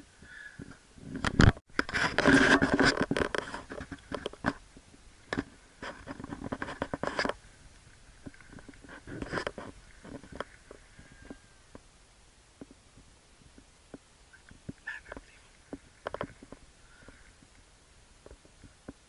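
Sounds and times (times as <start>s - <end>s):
scraping and rustling handling noise: 1.1s - 11.8s.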